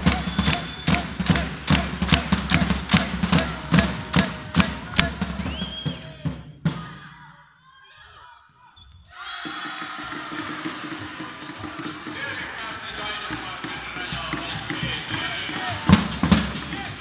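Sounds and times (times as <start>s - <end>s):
short whistle: 0.0s - 1.2s, 5.1s - 6.2s
supporters beating drums: 0.0s - 7.1s, 9.4s - 17.0s
crowd cheering: 0.0s - 17.0s.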